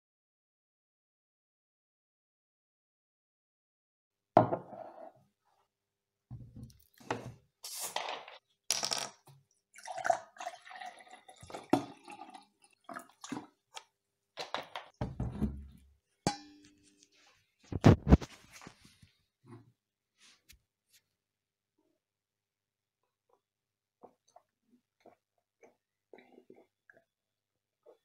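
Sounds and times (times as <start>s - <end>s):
glass knocking on countertop: 4.4s - 4.7s
cola pouring and fizzing: 9.7s - 13.9s.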